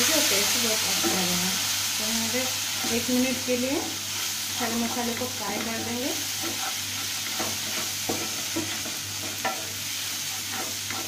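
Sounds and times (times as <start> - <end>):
spices sizzling in oil: 0.0 - 11.0
spatula scraping pan: 2.4 - 11.0.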